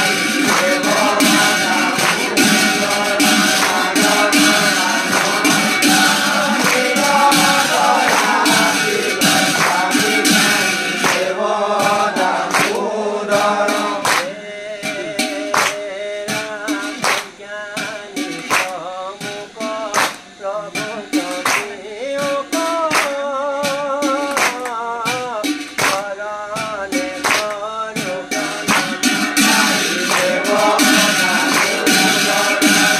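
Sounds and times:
sharp percussive strikes: 0:00.0 - 0:32.9
voices chanting devotional song: 0:00.0 - 0:32.9.

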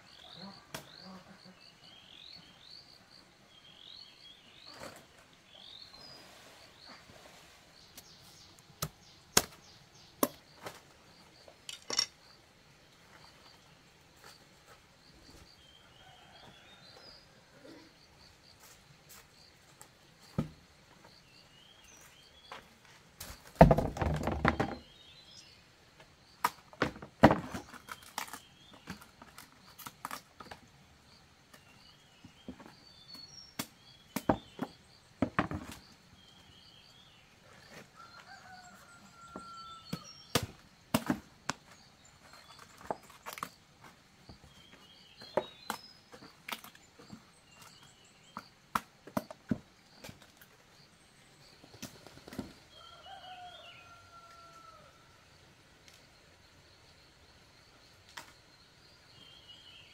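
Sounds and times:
birds chirping: 0:41.3 - 0:54.9.

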